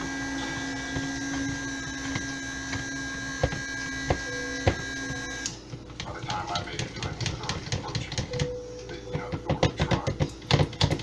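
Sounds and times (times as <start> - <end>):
stick blender motor humming: 0.0 - 8.5.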